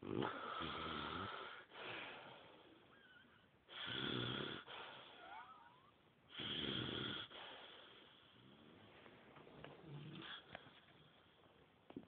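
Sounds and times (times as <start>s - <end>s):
person snoring: 0.0s - 1.6s.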